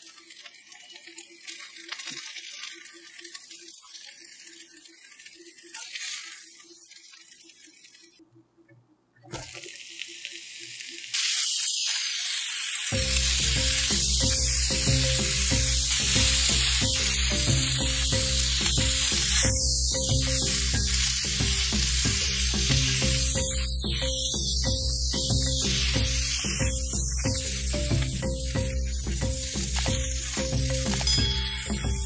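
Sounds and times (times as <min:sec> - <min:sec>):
vegetables sizzling in a pan: 0:00.0 - 0:08.2, 0:09.3 - 0:32.0
background music with steady beat: 0:12.9 - 0:32.0.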